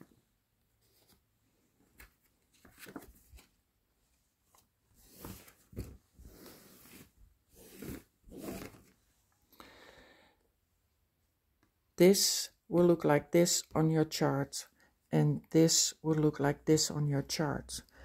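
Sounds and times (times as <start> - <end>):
paper and fabric rustling: 0.8 - 9.0.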